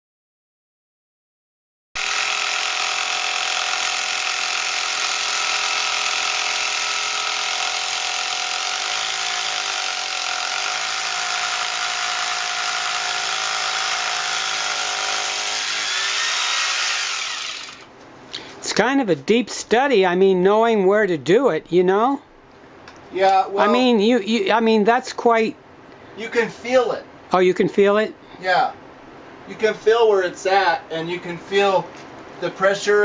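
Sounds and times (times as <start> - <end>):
electric drill boring into concrete: 2.0 - 17.9.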